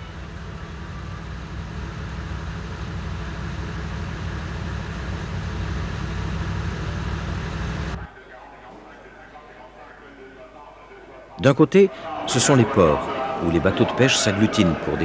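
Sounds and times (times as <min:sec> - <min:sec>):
engine drone: 0:00.0 - 0:08.1.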